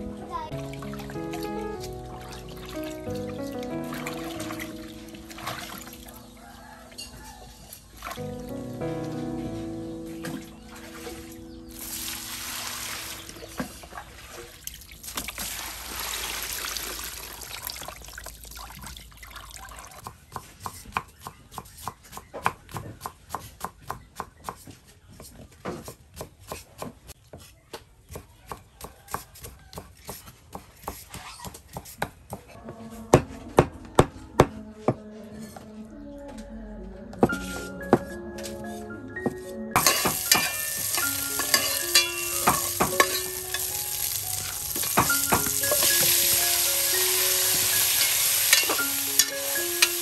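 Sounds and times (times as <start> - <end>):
water pouring and splashing: 0.5 - 8.5, 10.1 - 20.0, 39.8 - 50.0.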